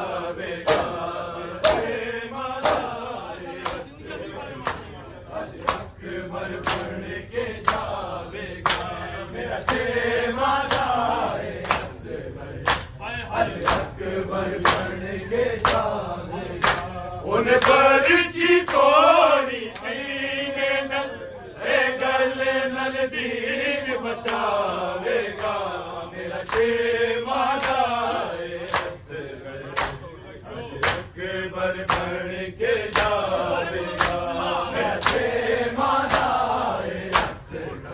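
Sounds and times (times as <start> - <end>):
men chanting a lament: 0.0 - 37.9
hands slapping bare chests: 0.6 - 1.0, 1.6 - 2.0, 2.6 - 3.0, 9.6 - 9.9, 28.6 - 29.0, 31.8 - 32.2, 32.9 - 33.3, 34.0 - 34.2, 34.9 - 35.3, 37.1 - 37.4.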